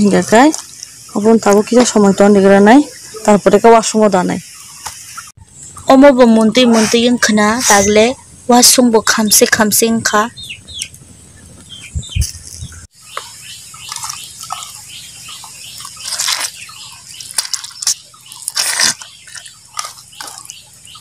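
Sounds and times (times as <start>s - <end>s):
small birds chirping: 0.0s - 21.0s
wet squelching of hands: 13.2s - 21.0s.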